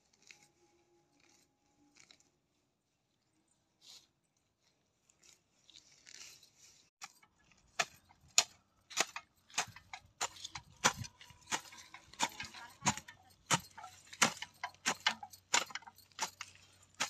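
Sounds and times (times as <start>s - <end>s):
dry grass rustling: 0.0s - 17.0s
hoe chopping into dry soil: 7.0s - 17.0s.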